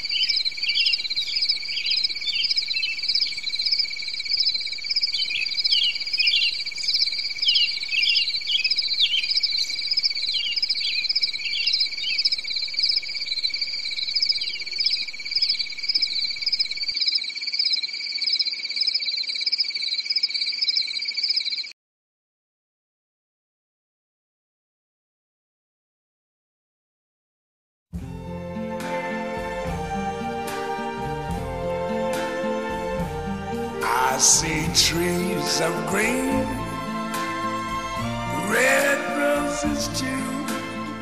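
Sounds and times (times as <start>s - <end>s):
insect trill: 0.0s - 21.7s.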